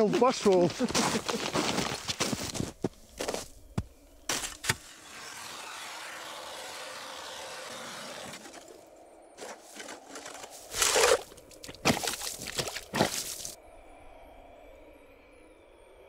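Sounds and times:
ice auger grinding ice: 0:04.3 - 0:08.8, 0:09.4 - 0:13.5.

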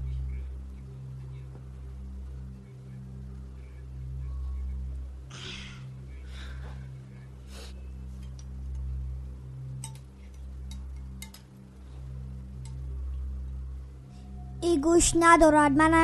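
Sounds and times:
steady low hum: 0:00.0 - 0:16.0
spoon clinking against bowl: 0:09.8 - 0:11.5.

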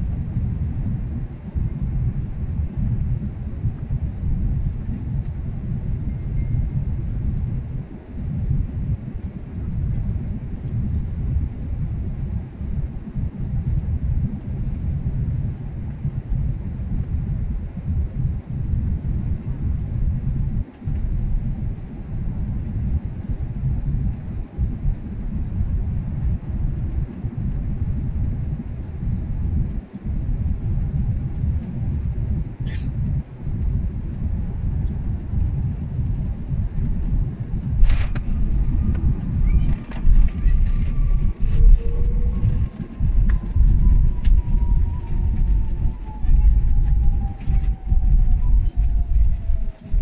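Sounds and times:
airliner cabin engine rumble: 0:00.0 - 0:50.0
faint whine falling in pitch: 0:20.6 - 0:50.0.

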